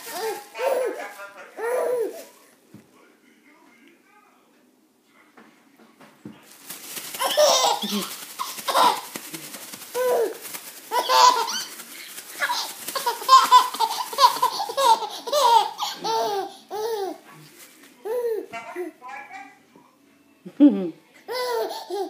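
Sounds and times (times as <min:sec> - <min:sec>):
baby laughing: 0:00.0 - 0:02.3, 0:07.0 - 0:09.3, 0:09.9 - 0:17.3, 0:18.0 - 0:19.0, 0:21.3 - 0:22.0
plastic bag rustling: 0:00.0 - 0:02.8, 0:06.4 - 0:18.2.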